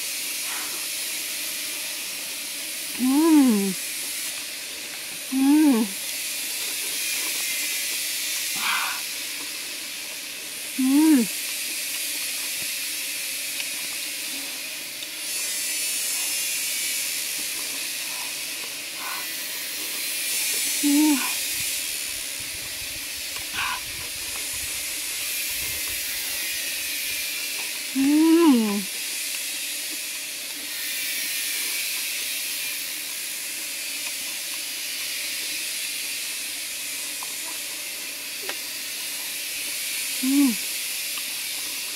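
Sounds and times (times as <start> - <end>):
woman humming mm: 2.9 - 3.8, 5.3 - 6.0, 10.8 - 11.4, 20.7 - 21.5, 28.0 - 28.9, 40.2 - 40.7.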